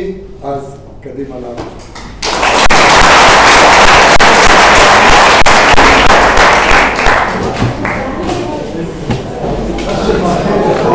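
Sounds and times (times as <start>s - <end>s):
audience applauding: 1.8s - 8.2s.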